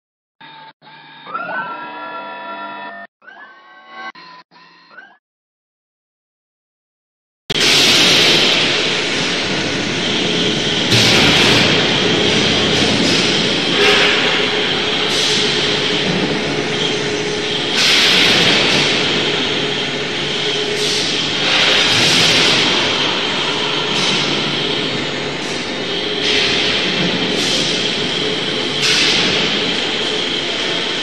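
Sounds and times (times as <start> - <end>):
rail cart mechanical rumble: 7.6 - 31.0.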